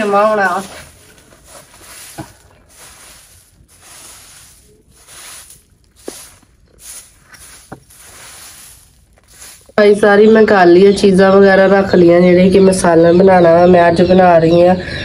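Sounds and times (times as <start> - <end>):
broom sweeping concrete floor: 0.0 - 10.0
leaves rustling: 0.0 - 10.6.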